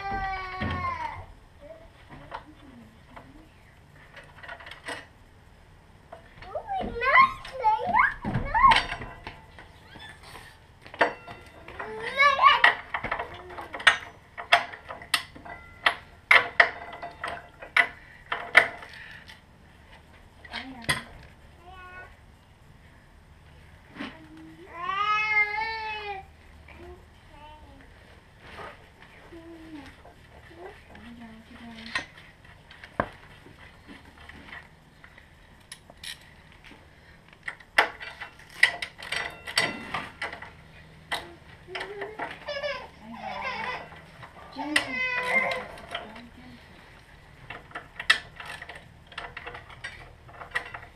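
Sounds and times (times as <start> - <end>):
metal tools clinking: 8.5 - 10.3, 10.9 - 19.0, 37.4 - 46.3.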